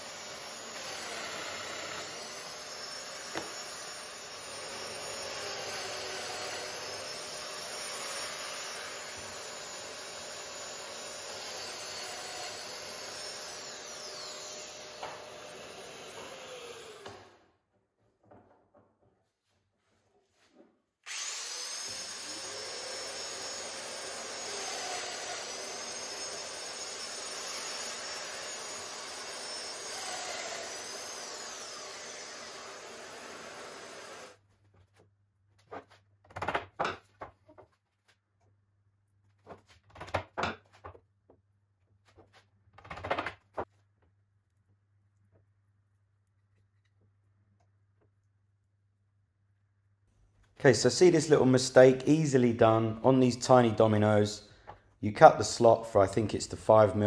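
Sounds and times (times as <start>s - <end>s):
power tool whirring: 0.0s - 17.5s, 21.0s - 34.4s.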